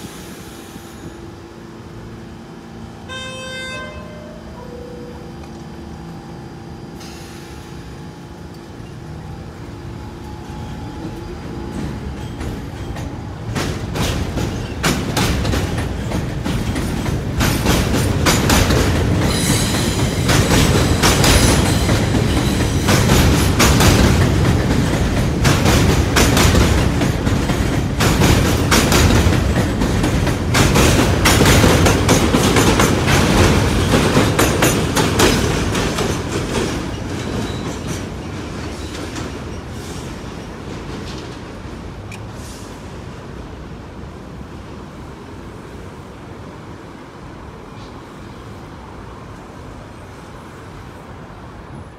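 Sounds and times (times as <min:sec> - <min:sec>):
subway train wheels clicking: 0:00.0 - 0:51.9
train rumble: 0:00.0 - 0:51.9.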